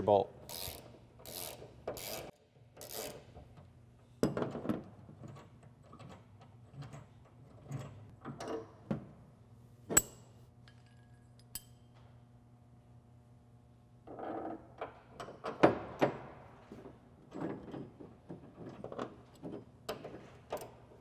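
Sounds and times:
ratchet wrench clicking: 0.5s - 3.2s.

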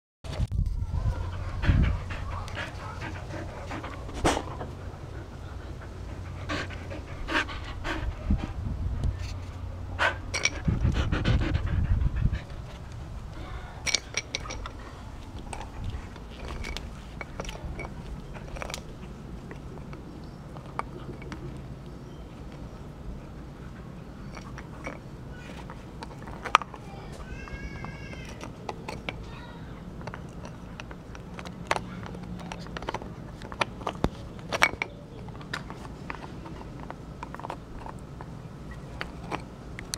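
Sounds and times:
dog gnawing on a bone: 15.4s - 22.7s, 30.0s - 39.9s.

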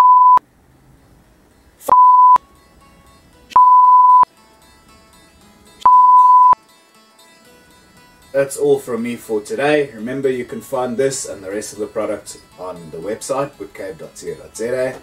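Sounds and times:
censor bleeps: 0.0s - 0.4s, 1.9s - 2.4s, 3.6s - 4.3s, 5.8s - 6.6s.

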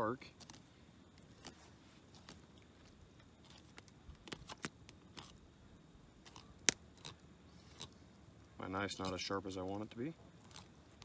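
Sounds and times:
knife crunching through fish: 6.2s - 7.9s, 10.4s - 10.8s.

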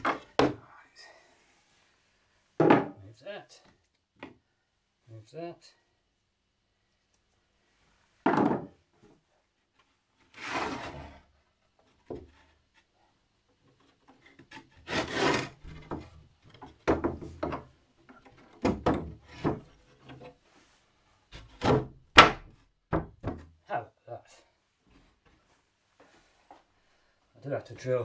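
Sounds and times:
wooden boards knocking: 2.6s - 3.0s, 8.2s - 8.8s, 15.5s - 19.7s, 21.5s - 23.6s
wood scraping against wood: 10.2s - 12.9s, 13.7s - 21.9s.

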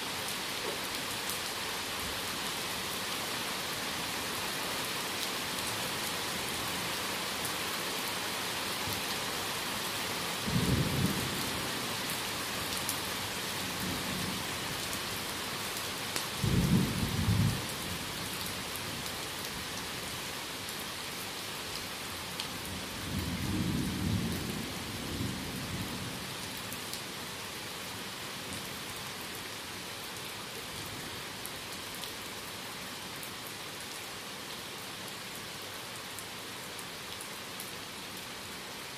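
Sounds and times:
steady rain hissing: 0.0s - 38.9s
low rumbles of thunder: 10.5s - 11.7s, 16.4s - 17.7s, 23.0s - 26.2s.

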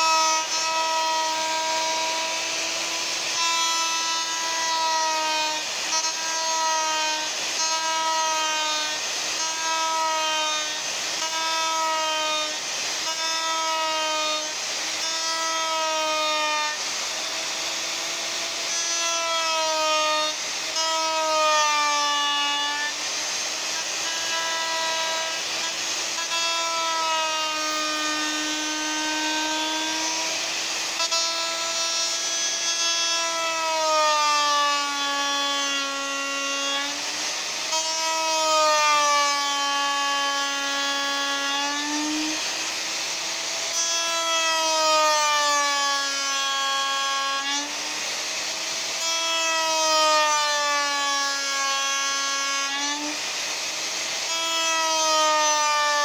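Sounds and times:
electric router cutting wood: 0.0s - 56.0s.

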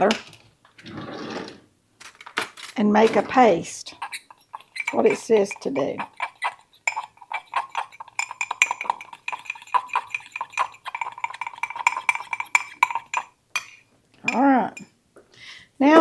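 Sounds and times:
utensil clinking against a bowl: 3.8s - 14.9s.

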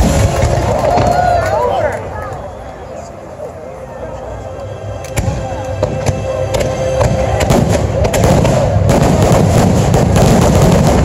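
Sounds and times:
fireworks bangs and crackle: 0.0s - 1.6s, 5.1s - 11.0s.

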